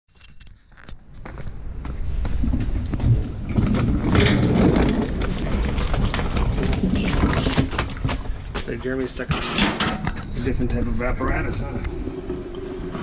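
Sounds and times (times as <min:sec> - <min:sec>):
casters rumbling on concrete: 0:01.2 - 0:13.0
small knocks and rattles: 0:02.5 - 0:10.9.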